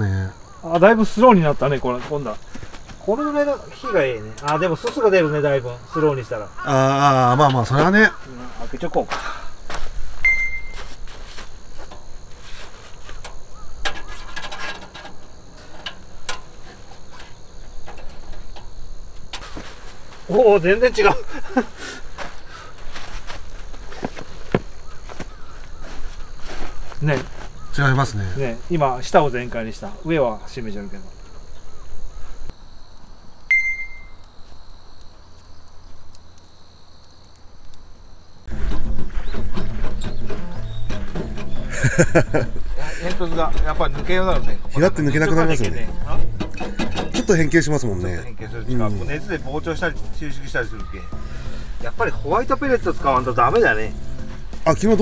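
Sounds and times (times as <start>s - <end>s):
faint high whine: 10.2s - 11.4s, 33.5s - 34.4s
short ringing ping: 33.5s - 34.2s.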